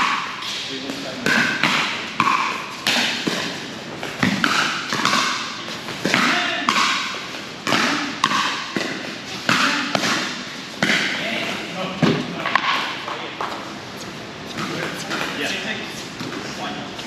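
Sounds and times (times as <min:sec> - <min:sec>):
paddles hitting plastic ball: 0:00.0 - 0:11.2.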